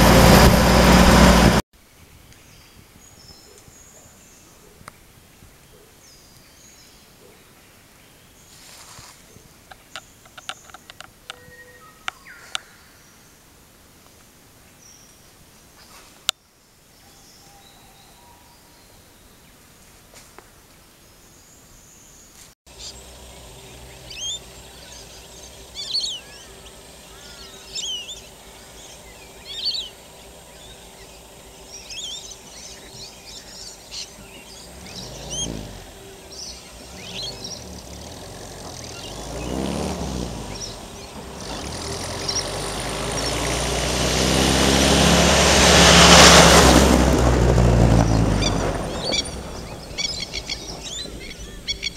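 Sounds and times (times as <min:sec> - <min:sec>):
vehicles passing: 0:00.0 - 0:01.6, 0:22.7 - 0:51.9
birds chirping: 0:02.3 - 0:13.4, 0:21.2 - 0:51.9.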